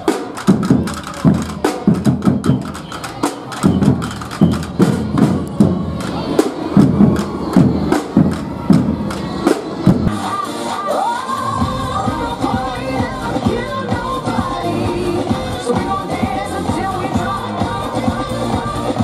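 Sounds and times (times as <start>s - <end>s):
snare drums playing fast rhythm: 0.0s - 10.2s.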